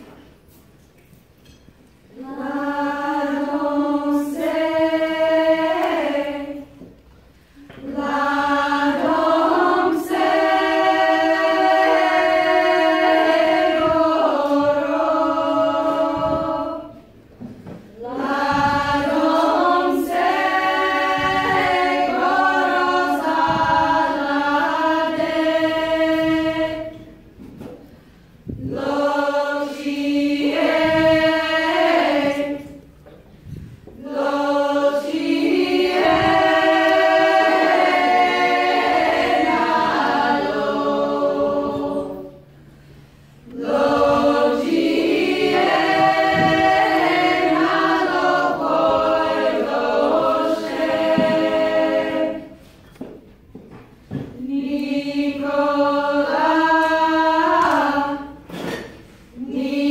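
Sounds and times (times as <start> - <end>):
women's choir singing a cappella: 2.0 - 59.9.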